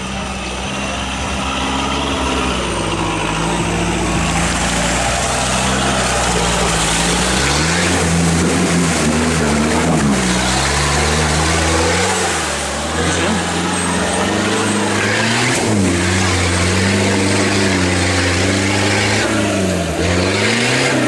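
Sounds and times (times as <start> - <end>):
engine revving: 0.0 - 21.0
tyres churning mud: 0.0 - 21.0.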